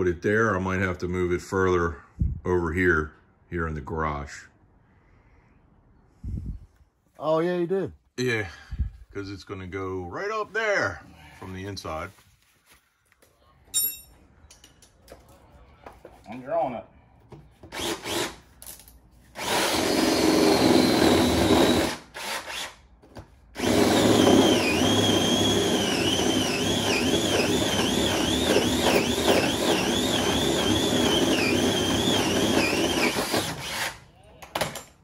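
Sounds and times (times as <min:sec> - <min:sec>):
cordless drill whining: 0:17.6 - 0:18.4, 0:19.4 - 0:22.8, 0:23.6 - 0:34.1.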